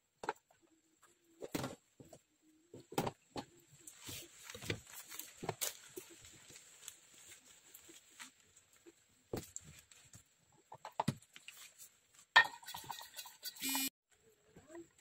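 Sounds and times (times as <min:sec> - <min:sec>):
kitchen items knocking and clicking: 0:12.4 - 0:13.6.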